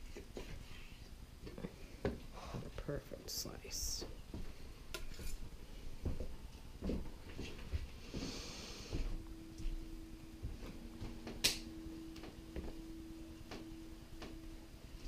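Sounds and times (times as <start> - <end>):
steady low hum: 0.0 - 15.0
knife scraping: 4.9 - 5.4.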